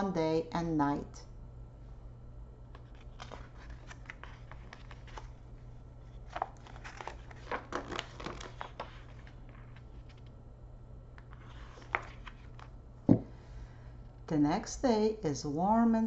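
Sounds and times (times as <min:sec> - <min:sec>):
book pages rustling: 0:02.7 - 0:10.3, 0:11.2 - 0:13.3.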